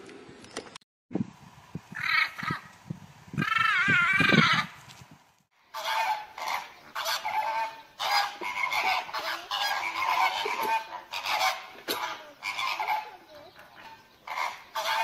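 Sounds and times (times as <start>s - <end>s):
flamingos honking: 5.7s - 15.0s.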